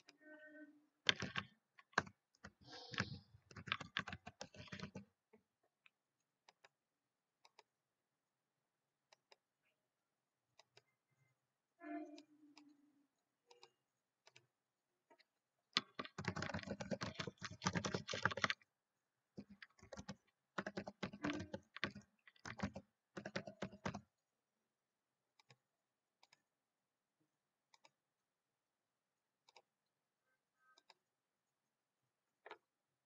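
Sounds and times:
typing on computer keyboard: 0:01.1 - 0:05.1, 0:15.8 - 0:18.6, 0:19.4 - 0:24.1.

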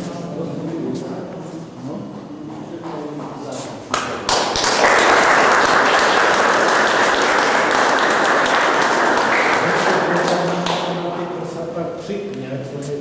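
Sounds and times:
audience applauding: 0:04.0 - 0:11.1.

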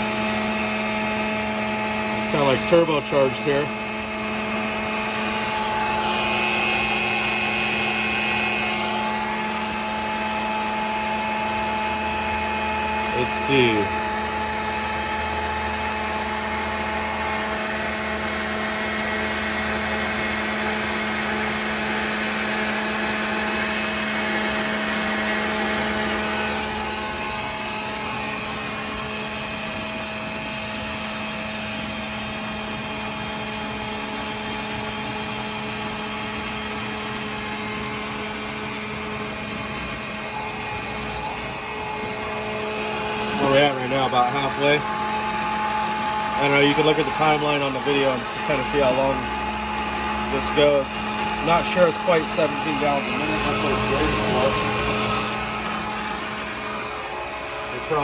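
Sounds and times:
electric pump motor hum: 0:00.0 - 0:58.0.

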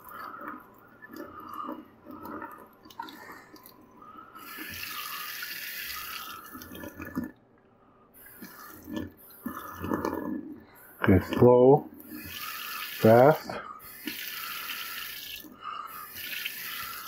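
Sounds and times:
faucet water running into sink: 0:04.5 - 0:06.4, 0:12.1 - 0:17.0.

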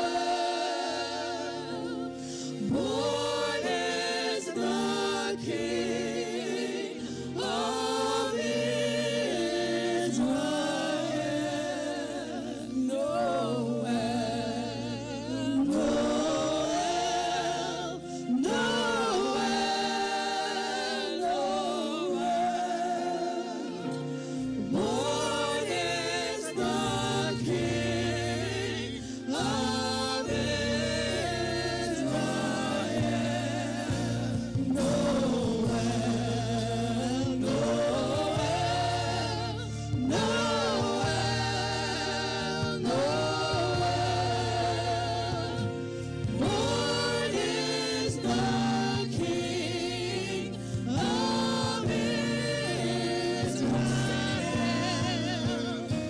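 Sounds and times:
backing singers: 0:00.0 - 0:56.0
lead vocalist singing: 0:00.0 - 0:56.0.

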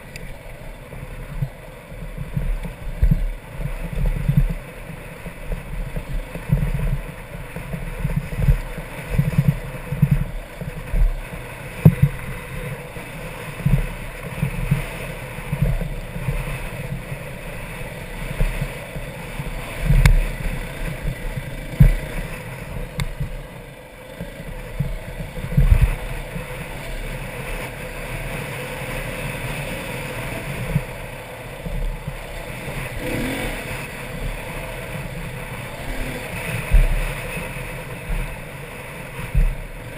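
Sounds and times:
dirt bike engine running: 0:00.0 - 0:39.9
low thumps: 0:21.0 - 0:23.4.

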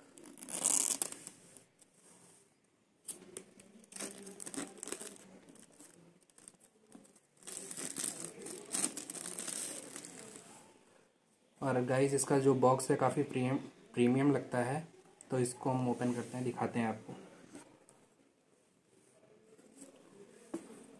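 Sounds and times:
plastic wrap crinkling: 0:03.6 - 0:10.6.

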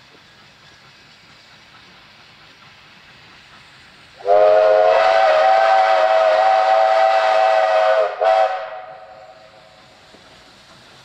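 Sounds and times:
steam locomotive whistle: 0:04.2 - 0:09.6.

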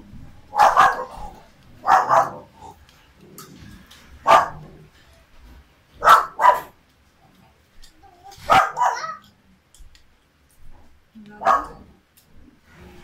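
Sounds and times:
dog barking: 0:00.5 - 0:02.5, 0:04.2 - 0:04.7, 0:06.0 - 0:06.8, 0:08.4 - 0:09.2, 0:11.4 - 0:11.9.

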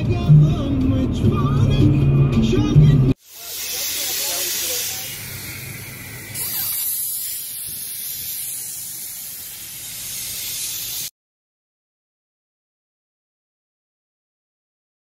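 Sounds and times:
air hissing from tyre valve: 0:03.2 - 0:11.1.

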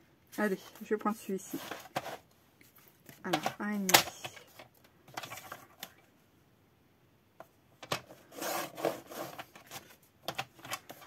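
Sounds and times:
paper scraping: 0:08.1 - 0:10.0.

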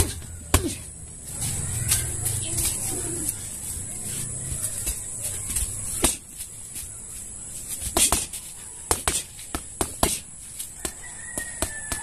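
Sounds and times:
punches hitting punching bag: 0:00.0 - 0:00.9, 0:06.0 - 0:06.3, 0:07.9 - 0:10.2, 0:11.6 - 0:12.0.

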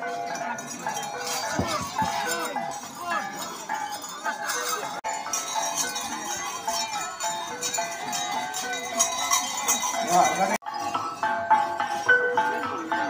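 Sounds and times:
crowd voices and calls: 0:00.0 - 0:13.0
metal bells jingling: 0:00.0 - 0:13.0.

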